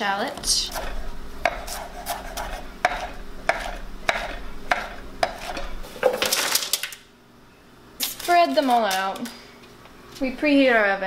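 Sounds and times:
knife chopping on wooden board: 0:00.4 - 0:05.7.

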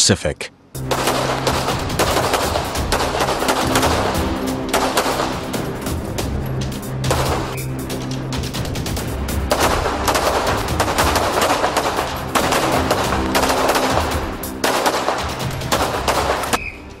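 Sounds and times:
background music: 0:00.0 - 0:17.0
rapid handgun shots: 0:00.8 - 0:05.9, 0:07.0 - 0:07.7, 0:09.4 - 0:16.7.

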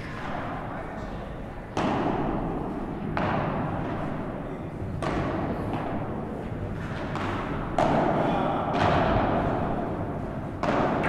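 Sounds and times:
steady hall background: 0:00.0 - 0:11.0
padel ball hits echoing: 0:01.7 - 0:04.3, 0:04.9 - 0:11.0.

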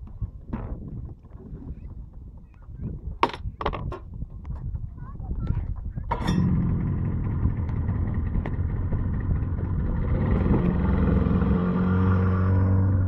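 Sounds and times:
outboard motor running: 0:06.2 - 0:11.3.

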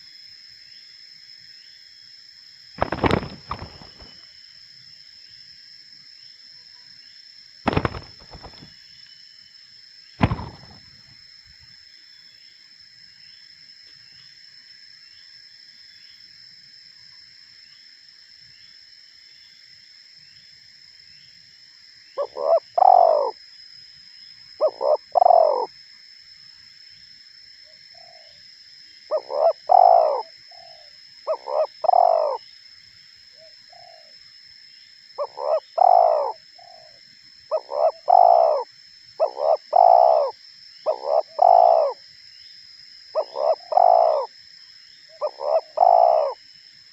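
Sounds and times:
dove cooing: 0:02.8 - 0:04.1, 0:07.7 - 0:08.7, 0:22.2 - 0:23.4, 0:24.6 - 0:25.7, 0:29.1 - 0:32.4, 0:35.2 - 0:36.9, 0:37.5 - 0:42.0, 0:43.2 - 0:44.3, 0:45.2 - 0:46.4
high-pitched insect drone: 0:21.8 - 0:26.8, 0:28.0 - 0:46.9.

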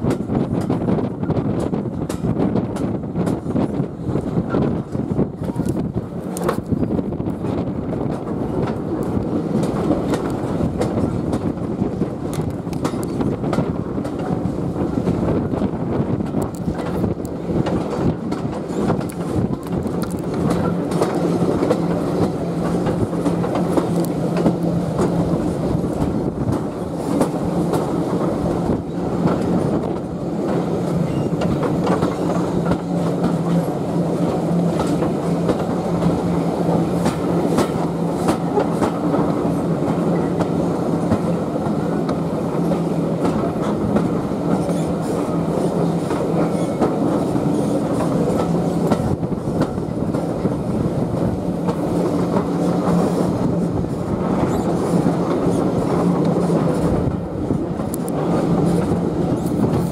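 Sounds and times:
train coach rumble: 0:00.0 - 0:59.9
train wheels clicking over rail joints: 0:00.0 - 0:59.9.

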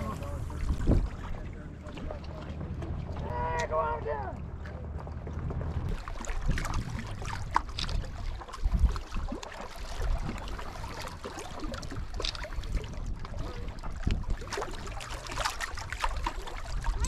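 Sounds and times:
wind noise on microphone: 0:00.0 - 0:01.6, 0:05.4 - 0:17.0
small waves lapping on rocks: 0:05.7 - 0:17.0.

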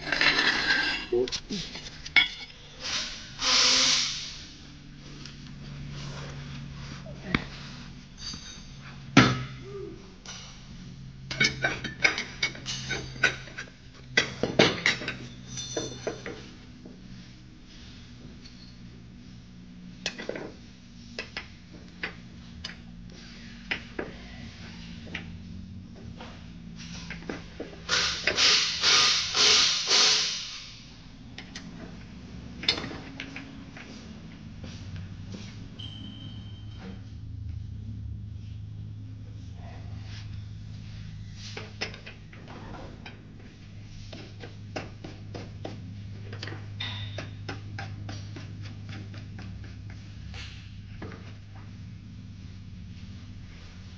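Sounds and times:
metal tools clinking and clanking: 0:00.0 - 0:02.6, 0:08.2 - 0:09.6, 0:11.3 - 0:16.5
steady low hum: 0:00.0 - 0:53.9.

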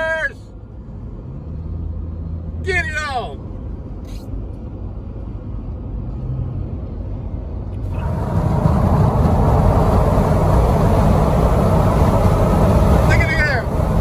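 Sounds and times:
road rumble in car cabin: 0:00.0 - 0:14.0
rushing wind and tyre noise: 0:00.0 - 0:14.0.

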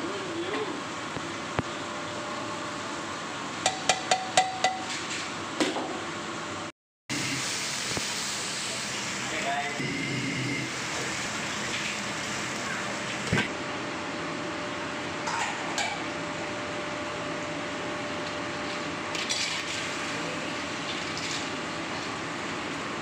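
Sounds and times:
commercial kitchen background: 0:00.0 - 0:23.0.

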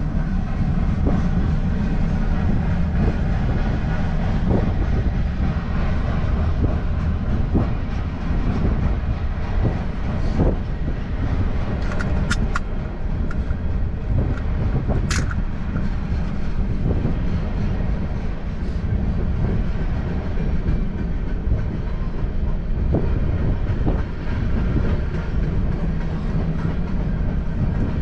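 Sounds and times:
wheels clacking over rail joints: 0:00.0 - 0:18.5
train rumbling past: 0:00.0 - 0:28.0.

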